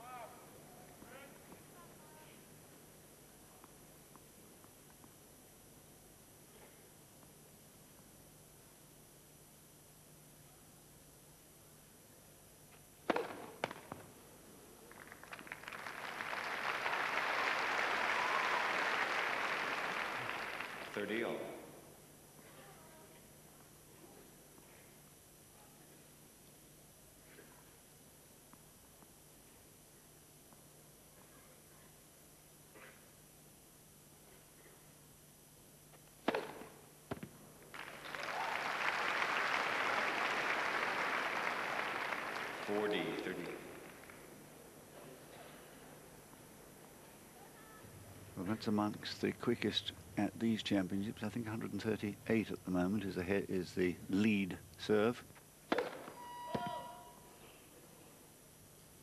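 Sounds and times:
racket striking tennis ball: 13.1 - 13.8, 36.2 - 37.3, 55.7 - 56.7
crowd applause: 14.9 - 21.3, 37.7 - 44.4.

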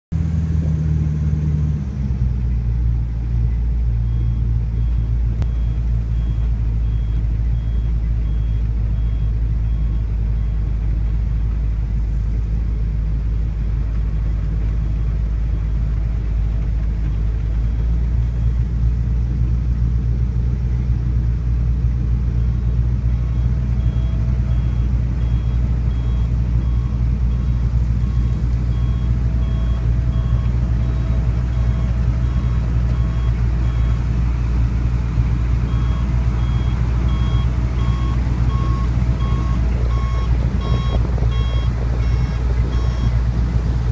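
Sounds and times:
large engine droning: 0.1 - 43.9
faint high beep: 4.0 - 10.6.

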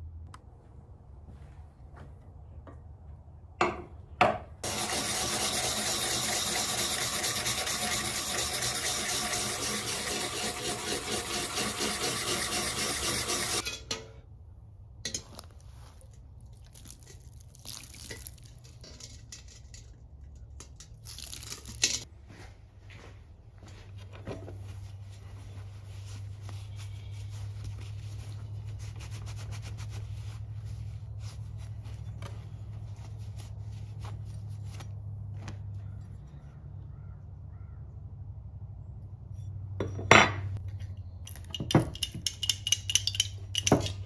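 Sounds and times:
plane iron scratching on sharpening stone: 4.6 - 13.6
water poured from a pot: 16.6 - 19.1.

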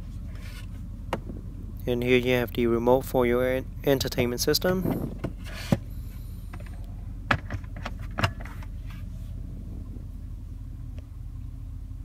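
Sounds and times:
car cabin hum: 0.0 - 12.0.

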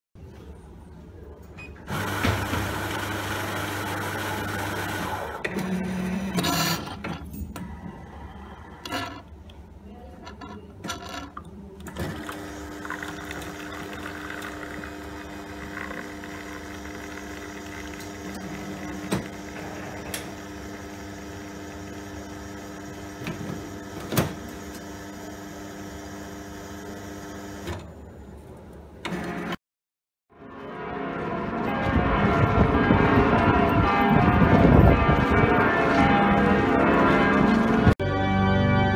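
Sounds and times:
coffee machine running: 1.8 - 9.3, 11.9 - 27.8.

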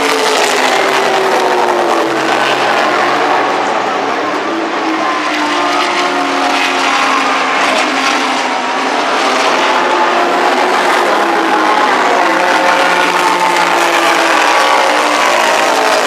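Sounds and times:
distant racing car engines: 0.0 - 16.0.

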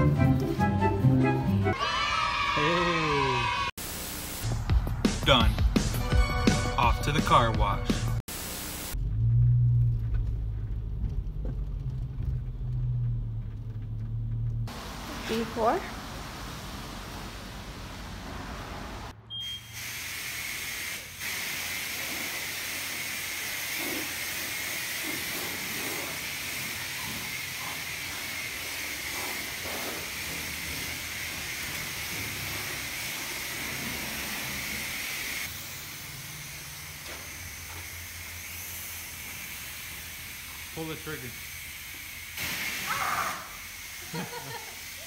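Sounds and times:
pressure washer spraying water: 3.8 - 4.6, 8.2 - 9.0, 14.7 - 45.0.

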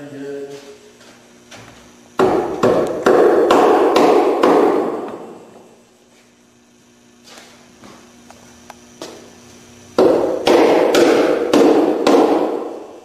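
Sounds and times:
claw hammer striking wood: 2.2 - 5.2, 10.0 - 12.9.

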